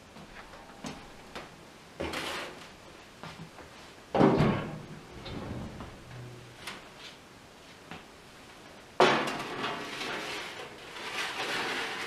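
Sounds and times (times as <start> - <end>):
oven door clanking open: 4.2 - 6.0
metal scrape: 9.3 - 12.0.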